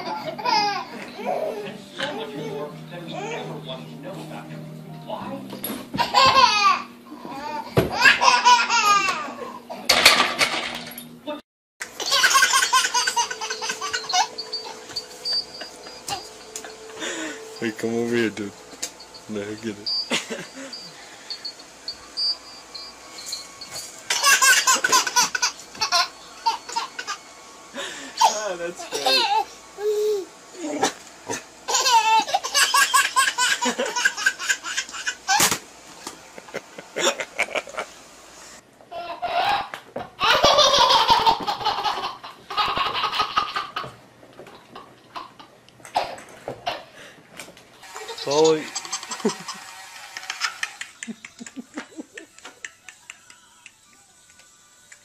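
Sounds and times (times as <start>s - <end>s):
baby giggling: 6.0s - 9.3s, 12.0s - 17.3s, 24.1s - 27.2s, 31.7s - 35.4s, 38.9s - 43.9s.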